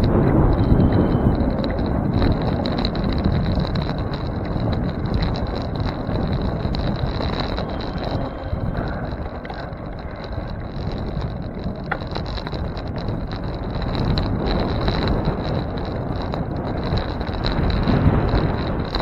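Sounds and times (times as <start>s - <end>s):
thin high whine: 0.0s - 3.4s, 6.5s - 11.6s
bicycle tyre road noise: 0.0s - 19.0s
wind buffeting microphone: 0.0s - 19.0s.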